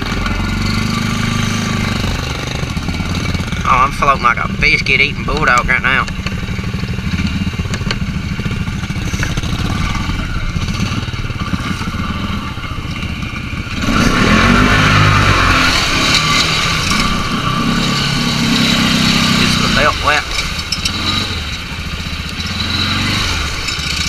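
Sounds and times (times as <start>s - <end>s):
atv engine running: 0.0s - 24.0s
water splashing from tyres: 13.0s - 24.0s.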